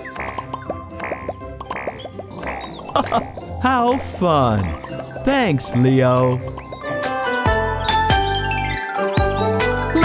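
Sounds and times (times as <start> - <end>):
bouncy children's music: 2.4 - 10.0.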